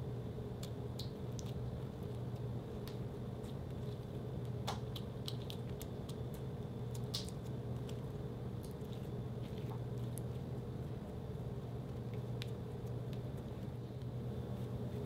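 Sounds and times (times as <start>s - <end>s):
steady low hum: 0.0s - 15.0s
slime squishing with wet clicks: 0.5s - 10.4s, 12.0s - 14.1s.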